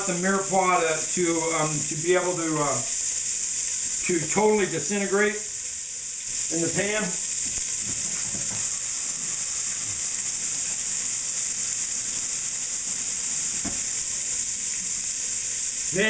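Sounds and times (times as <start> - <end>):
fat sizzling in a pan: 0.0 - 16.0
knock: 7.9 - 8.7, 13.6 - 13.8.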